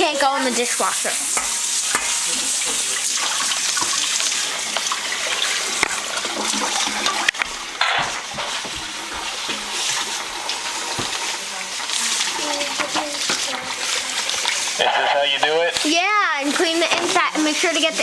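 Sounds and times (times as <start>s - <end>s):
tap running into sink: 1.4s - 14.6s
dishware clinking against sink: 6.4s - 10.1s.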